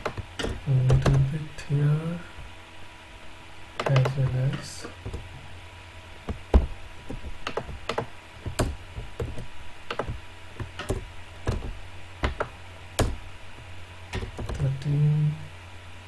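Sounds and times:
keyboard typing: 5.0s - 5.4s, 6.3s - 13.2s, 14.1s - 14.8s.

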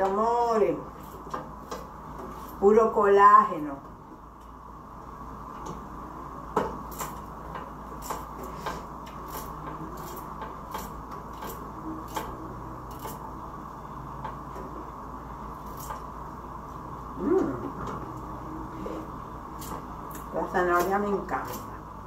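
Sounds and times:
steady background hum: 0.0s - 22.0s.

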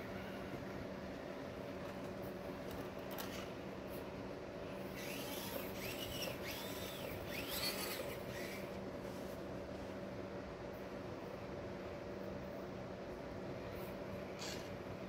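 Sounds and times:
small electric motor whirring: 4.8s - 8.8s
short high motor whines: 4.9s - 8.8s.

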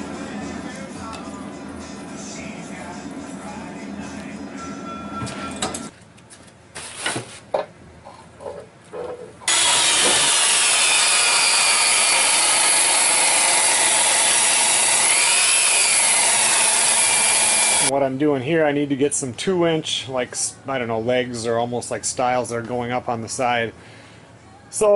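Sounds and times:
table saw cutting wood: 9.5s - 17.9s.

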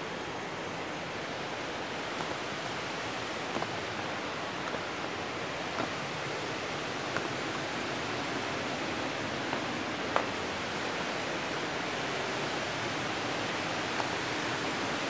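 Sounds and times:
waterfall rushing: 0.5s - 15.0s
faint taps: 9.5s - 10.4s.

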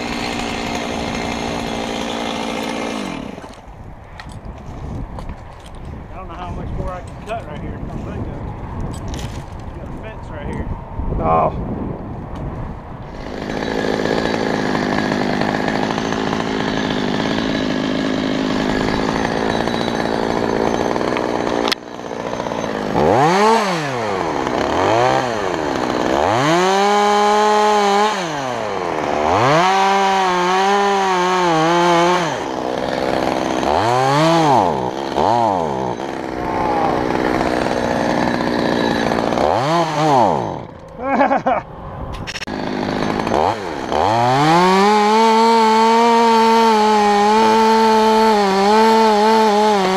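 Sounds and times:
chainsaw revving: 0.0s - 3.7s, 13.1s - 41.6s, 42.2s - 49.9s
chainsaw cutting wood: 0.0s - 4.4s, 13.0s - 41.5s, 42.2s - 49.9s
sharp click: 42.1s - 42.5s.

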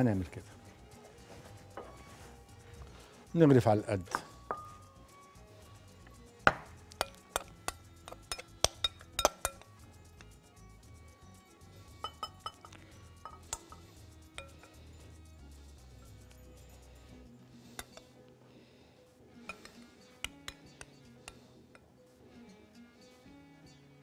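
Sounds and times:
soft background music: 0.0s - 24.0s
spoon clinking on glass bowl: 4.2s - 4.8s, 7.0s - 9.7s, 12.0s - 14.9s, 19.5s - 21.4s.

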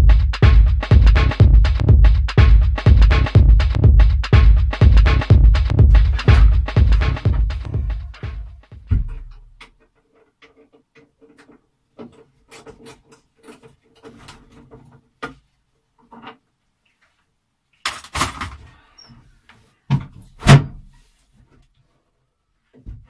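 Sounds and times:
objects knocking and rattling: 5.7s - 15.4s.

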